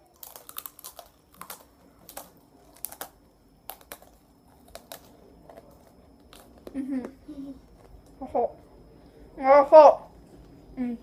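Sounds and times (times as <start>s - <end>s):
crunchy snacks being chewed: 0.0s - 8.2s.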